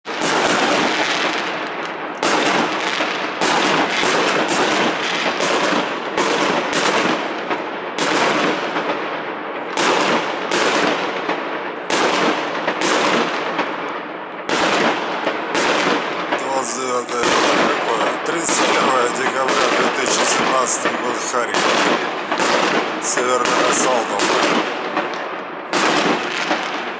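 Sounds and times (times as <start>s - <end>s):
fireworks bursting with echoes: 0.1s - 26.9s.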